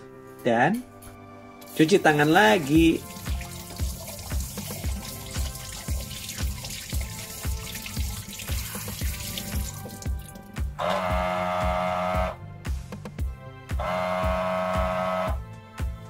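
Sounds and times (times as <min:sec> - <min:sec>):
background music with beat: 0:00.0 - 0:16.0
faucet water over hands: 0:01.6 - 0:10.8.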